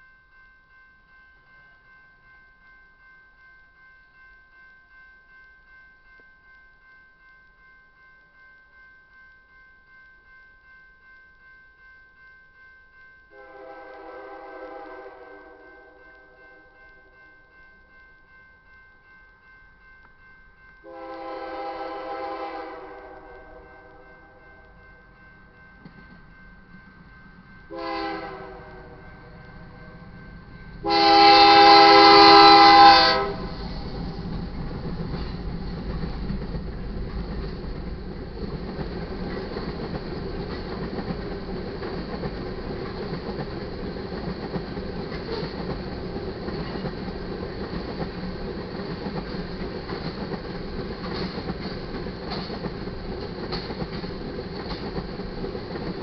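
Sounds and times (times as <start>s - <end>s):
locomotive horn blast: 13.4s - 15.8s, 20.9s - 23.6s, 27.7s - 29.0s, 30.8s - 33.5s
train rumbling past: 20.8s - 56.0s
wheels clicking over rail joints: 28.8s - 56.0s.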